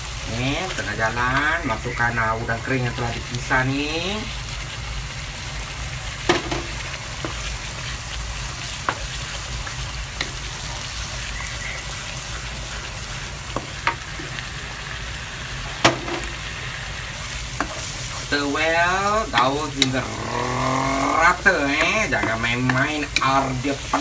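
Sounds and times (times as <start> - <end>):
paste sizzling in a wok: 0.0 - 24.0
wooden spoon knocking on pan: 6.3 - 7.4, 19.3 - 20.0, 21.7 - 24.0.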